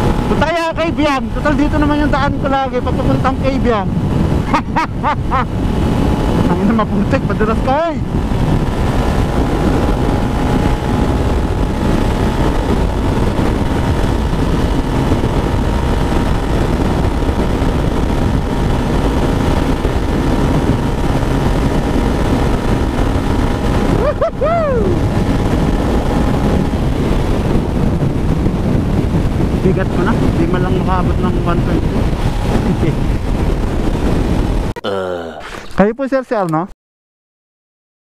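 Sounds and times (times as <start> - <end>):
wind rush on microphone: 0.0 - 34.8
motorcycle engine running: 5.3 - 34.7.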